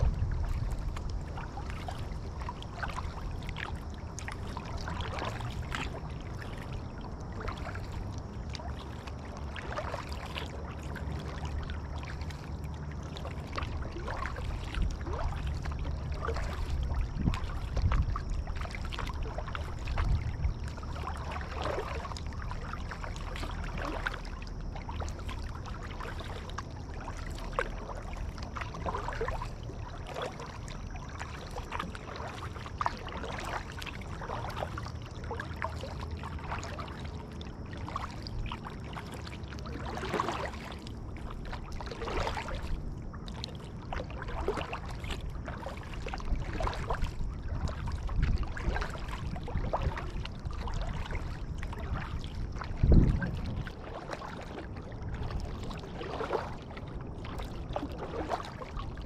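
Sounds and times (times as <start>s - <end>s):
low rumble: 0.0s - 9.7s
paddle splashing water: 0.0s - 59.0s
water trickling and dripping: 0.0s - 59.0s.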